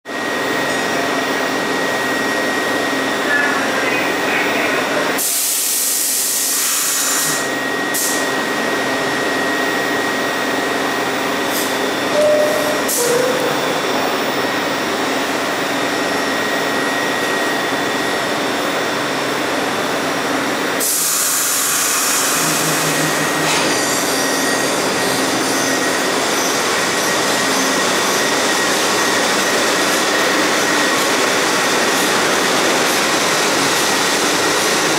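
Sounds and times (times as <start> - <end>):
train equipment hum: 12.0 - 15.8
thin high whine: 12.1 - 15.0.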